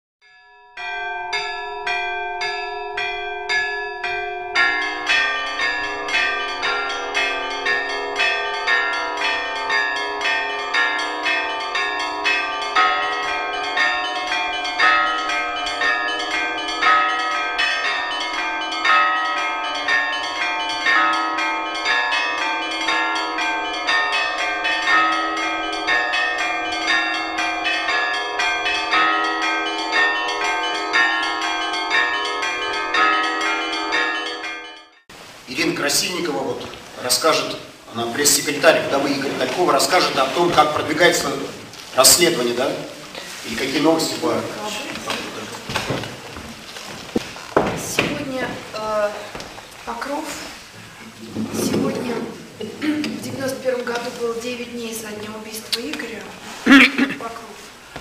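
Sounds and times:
heavy low bell strokes: 0.2s - 35.0s
small bells struck: 0.2s - 35.0s
church bells pealing: 0.2s - 46.7s.

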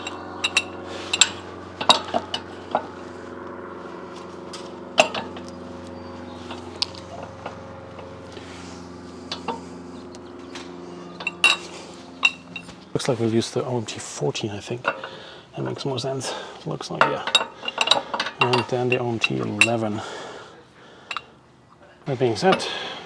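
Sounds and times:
metal parts clinking: 0.0s - 2.8s, 11.2s - 12.8s, 17.0s - 19.8s
steady low hum: 0.0s - 23.0s.

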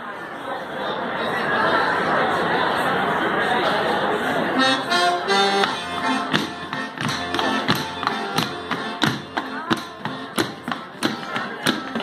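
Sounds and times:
folk dance music: 4.3s - 12.0s
sharp tapping on the beat: 5.6s - 12.0s.

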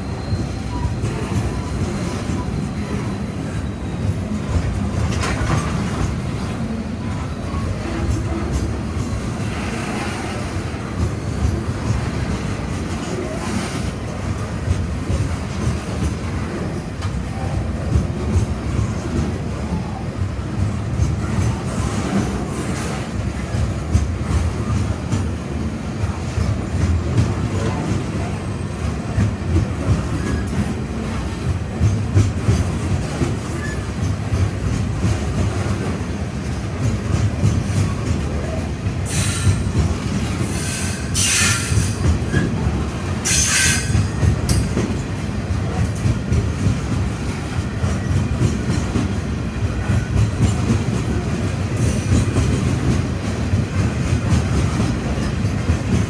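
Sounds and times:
high-pitched wheel squeals: 0.0s - 1.8s
train wheels rumbling on rail: 0.0s - 56.0s.

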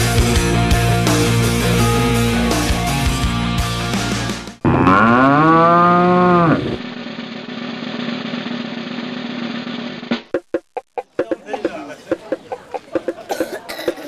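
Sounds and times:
cow mooing: 4.6s - 6.8s.

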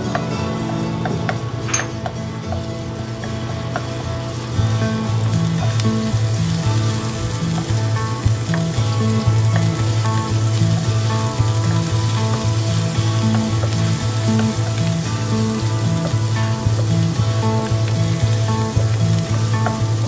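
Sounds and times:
background music with bass line: 0.0s - 20.0s
garlic sizzling in hot oil: 0.0s - 20.0s
wooden spatula stirring: 5.7s - 20.0s.

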